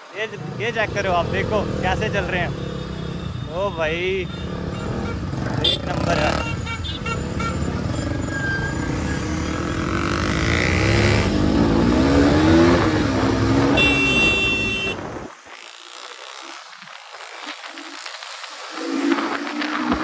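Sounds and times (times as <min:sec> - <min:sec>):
motorcycle engines: 0:00.0 - 0:20.0
motorcycle engine revving: 0:00.3 - 0:18.0
wind noise: 0:12.0 - 0:15.6.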